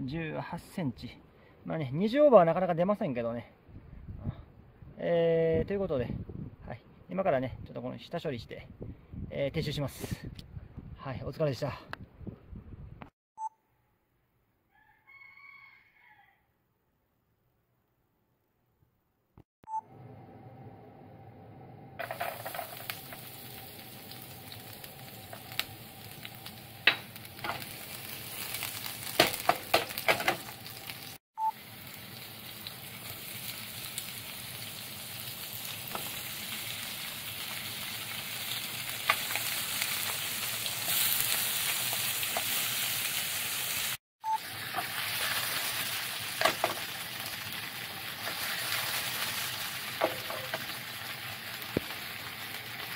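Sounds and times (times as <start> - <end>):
fish and garlic sizzling in oil: 22.0 - 52.9.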